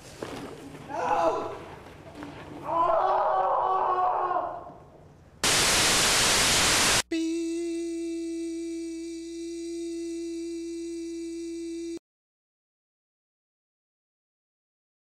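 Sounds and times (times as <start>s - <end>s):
television static hiss: 5.4s - 7.1s
test-pattern tone: 7.0s - 12.0s.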